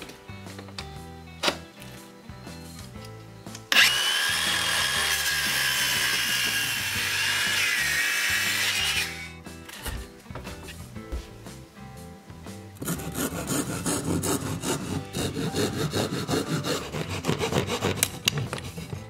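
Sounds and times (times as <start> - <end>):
background music: 0.0 - 19.0
circular saw cutting wood: 3.7 - 9.4, 12.8 - 19.0.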